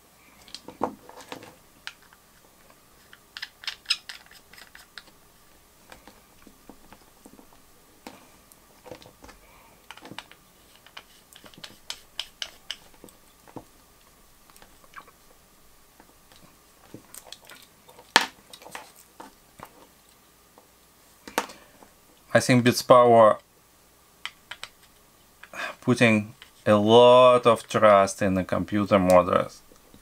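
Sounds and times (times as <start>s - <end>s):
metal screws clicking and rattling: 3.1s - 5.1s.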